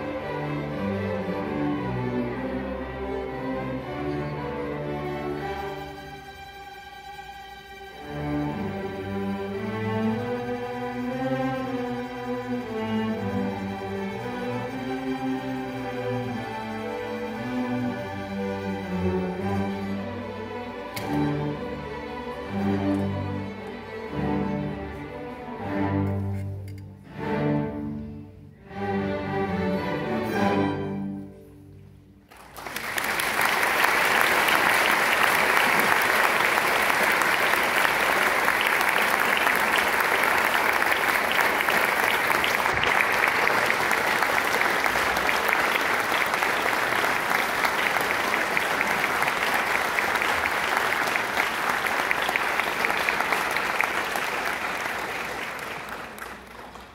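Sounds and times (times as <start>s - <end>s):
string orchestra chords: 0.0s - 56.9s
audience applause: 32.3s - 56.9s.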